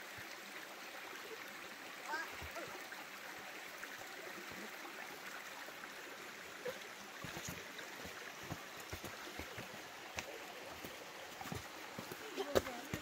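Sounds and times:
footsteps on rocky trail: 7.2s - 13.0s.

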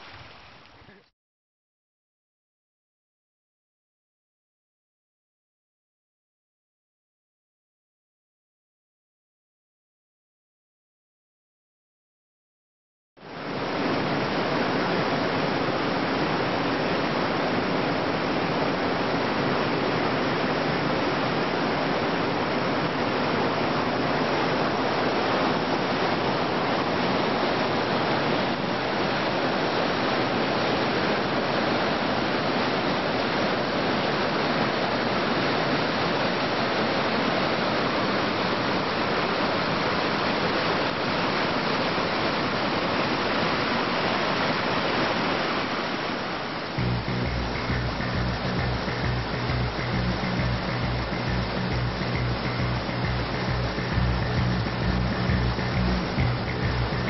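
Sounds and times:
river rapids rushing: 13.2s - 57.0s.

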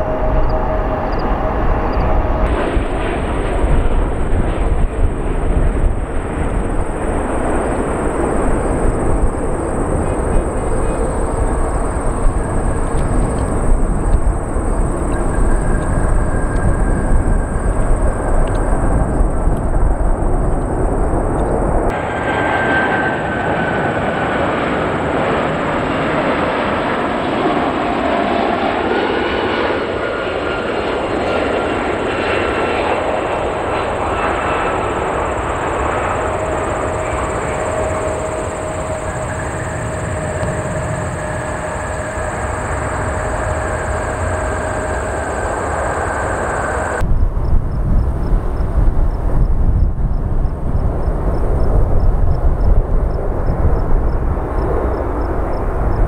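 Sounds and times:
jet engines rumbling: 0.0s - 56.0s
engine whine falling in pitch: 34.6s - 47.6s.

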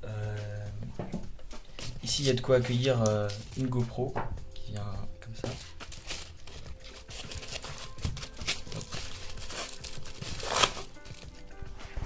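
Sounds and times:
crinkling and scraping of box: 5.4s - 11.4s.

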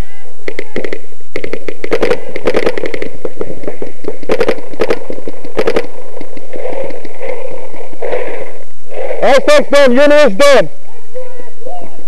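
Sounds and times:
paintball markers firing: 0.5s - 9.2s.

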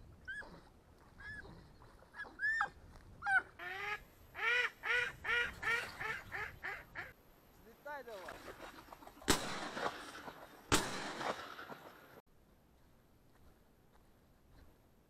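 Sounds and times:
ducks quacking: 3.2s - 7.2s.

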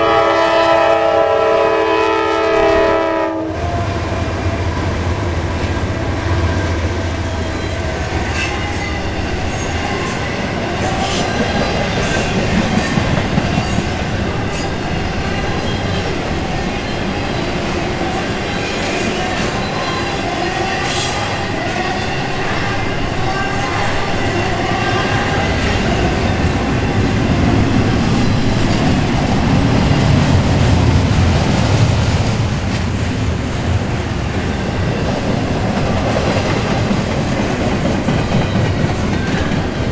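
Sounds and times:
diesel locomotive engine hum: 0.0s - 39.9s
train wheels clacking on rails: 5.6s - 39.9s.

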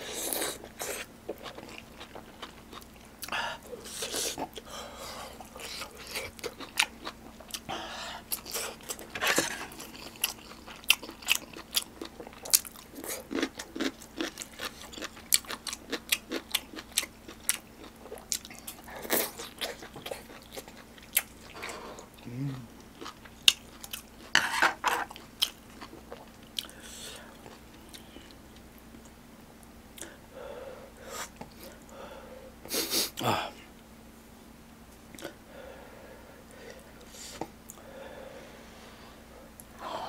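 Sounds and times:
person chewing crunchy food: 0.0s - 29.1s.

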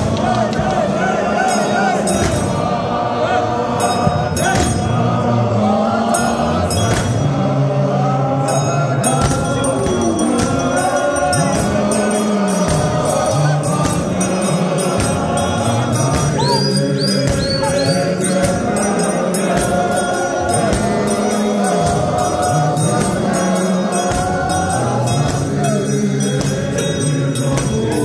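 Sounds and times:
men singing in chorus: 0.0s - 28.0s
sharp percussive beats: 0.0s - 28.0s.

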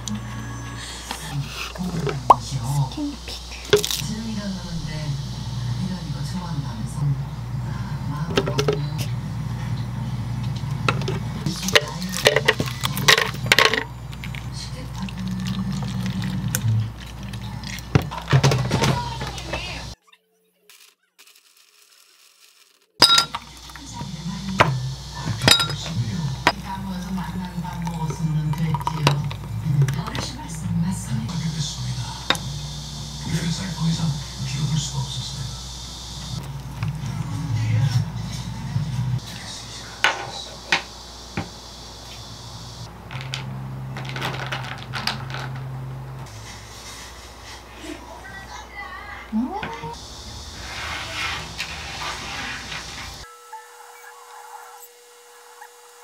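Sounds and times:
low steady hum: 0.0s - 20.0s, 23.0s - 48.6s
ice cubes clinking in glass: 21.2s - 23.6s, 25.5s - 25.9s.

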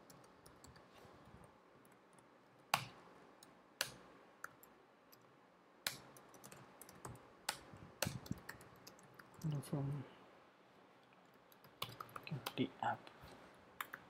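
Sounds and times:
keyboard typing: 0.0s - 0.9s, 1.8s - 9.6s, 11.2s - 12.6s, 13.8s - 14.0s.

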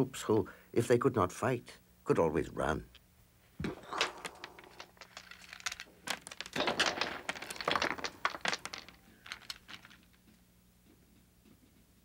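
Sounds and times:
rustling: 3.6s - 10.4s
clicking and clattering: 4.0s - 10.1s.

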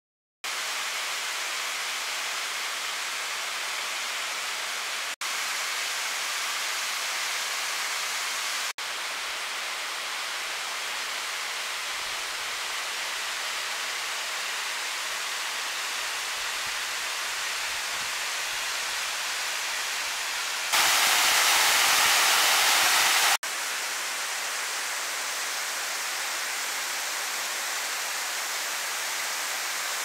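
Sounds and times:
waterfall rushing: 20.7s - 23.4s.

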